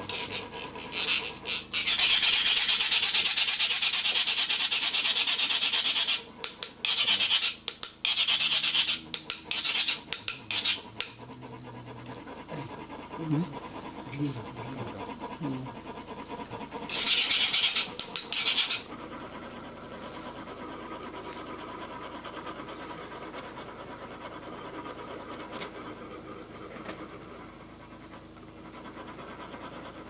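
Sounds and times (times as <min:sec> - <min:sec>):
metal scraper rasping metal funnel: 0:00.0 - 0:11.3, 0:16.1 - 0:19.0.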